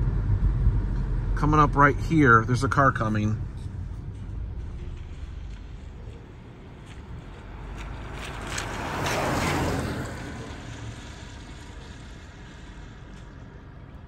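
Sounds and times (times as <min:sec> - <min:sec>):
low rumble: 0:00.0 - 0:13.6
car passing by: 0:03.0 - 0:14.0.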